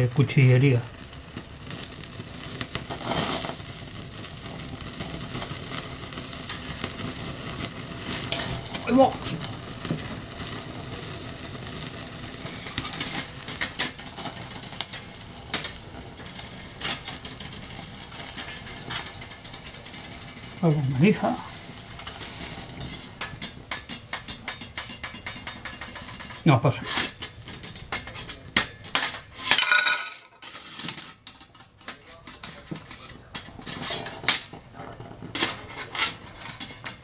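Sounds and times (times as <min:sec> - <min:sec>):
sausages sizzling on a grill: 0:00.0 - 0:37.0
wood fire crackling: 0:00.0 - 0:37.0.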